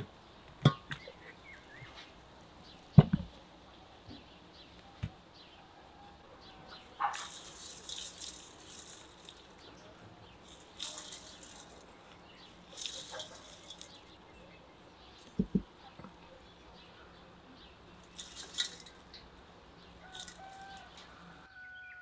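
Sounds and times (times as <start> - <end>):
salt pattering on vegetables: 7.0 - 14.2, 18.0 - 19.2, 20.0 - 21.0.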